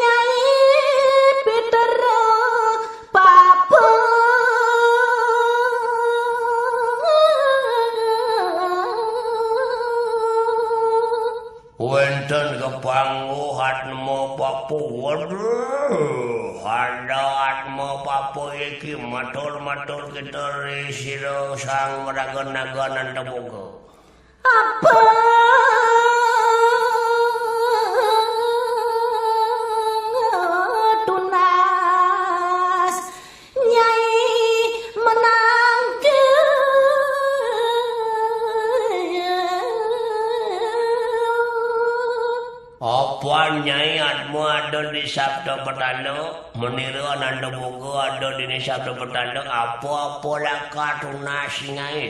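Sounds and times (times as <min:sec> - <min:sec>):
woman singing: 0:00.0 - 0:11.6, 0:24.4 - 0:42.8
person singing a long note: 0:24.6 - 0:29.7.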